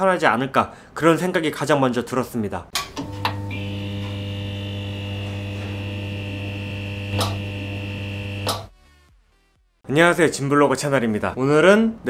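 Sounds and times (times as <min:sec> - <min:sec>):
neon sign buzzing hum: 0:02.8 - 0:08.7
electric crackle: 0:03.6 - 0:08.7.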